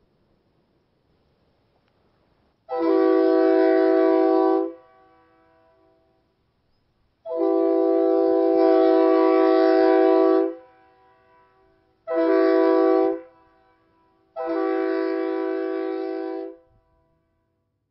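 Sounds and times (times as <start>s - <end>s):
train horn blasts: 2.7s - 6.2s, 7.2s - 17.6s.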